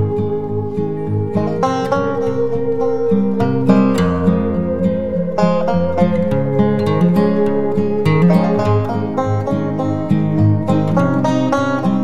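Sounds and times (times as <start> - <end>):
bluegrass tune on banjo and guitar: 0.0 - 12.0.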